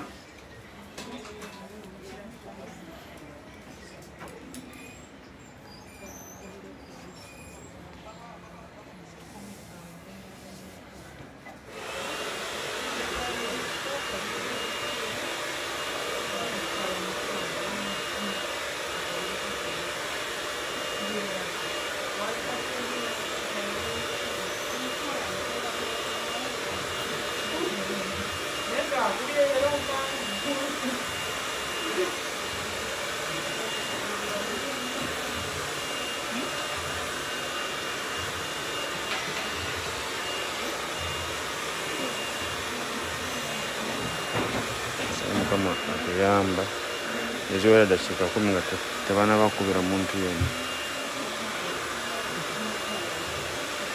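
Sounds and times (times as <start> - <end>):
hair dryer running: 11.6 - 53.9
voices: 11.9 - 41.0.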